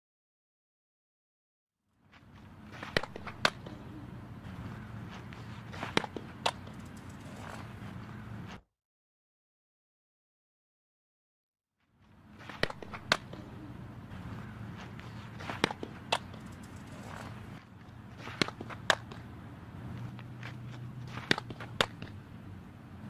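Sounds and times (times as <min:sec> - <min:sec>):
steady low hum: 0:02.1 - 0:08.6, 0:12.0 - 0:23.0
ball smacking into mitt: 0:05.7 - 0:06.8, 0:15.4 - 0:16.4, 0:18.2 - 0:19.2, 0:21.1 - 0:22.2.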